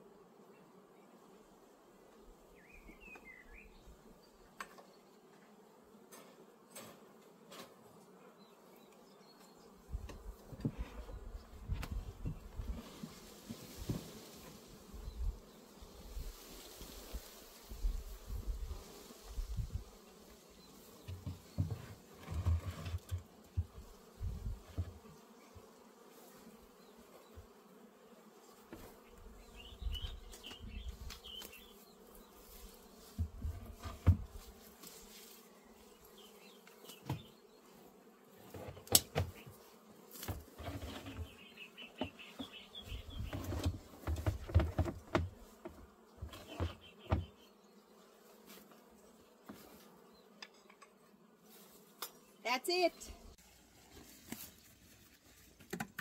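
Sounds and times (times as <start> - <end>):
honeybees buzzing: 0.0 - 55.2
knocks of wooden hive boxes: 21.0 - 25.1, 33.1 - 34.4, 36.8 - 37.5, 38.4 - 47.4.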